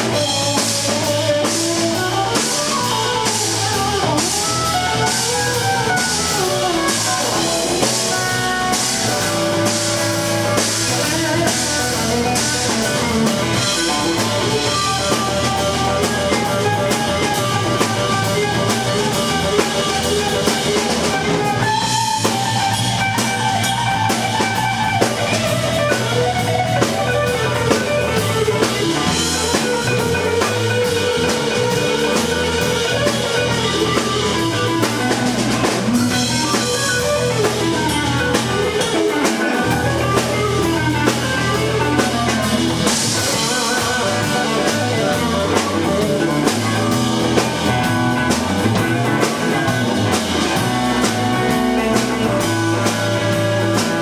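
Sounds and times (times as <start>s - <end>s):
drum kit with cymbals: 0.0s - 54.0s
electric bass: 0.0s - 54.0s
electric guitar melody: 0.0s - 54.0s.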